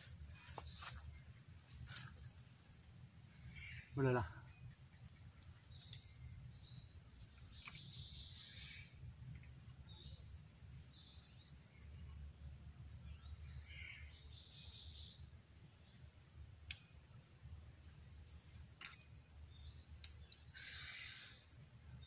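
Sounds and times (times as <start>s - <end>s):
insects droning: 0.0s - 22.0s
faint chirps: 3.3s - 12.2s, 18.9s - 22.0s.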